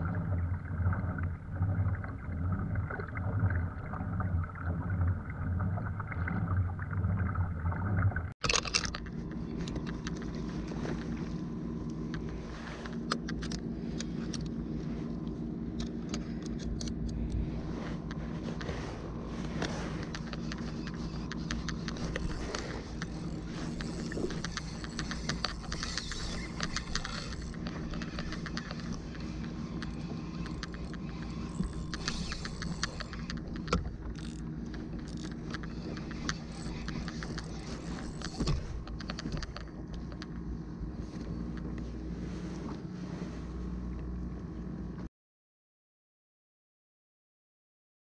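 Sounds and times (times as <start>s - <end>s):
steady low hum: 0.0s - 45.1s
fishing reel ticking clicks: 20.0s - 40.4s.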